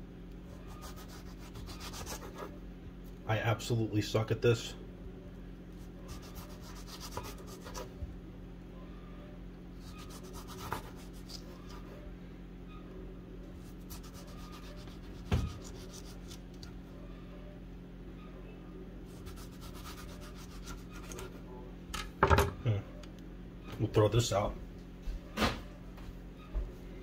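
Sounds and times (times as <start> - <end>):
knife slicing tomato: 6.1 - 7.9, 9.8 - 11.8, 13.6 - 16.5, 19.1 - 21.3.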